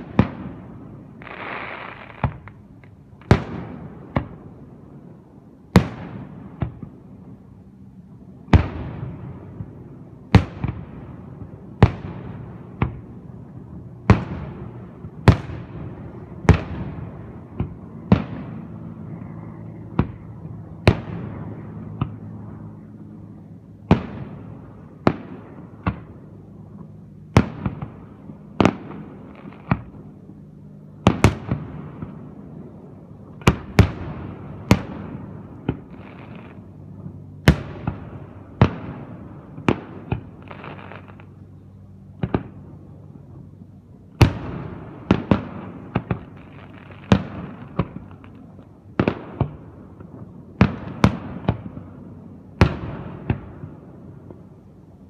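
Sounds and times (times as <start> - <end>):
fireworks bursting with echo: 0.0 - 5.0, 8.4 - 19.0, 23.7 - 30.2, 31.0 - 41.5, 44.2 - 55.0.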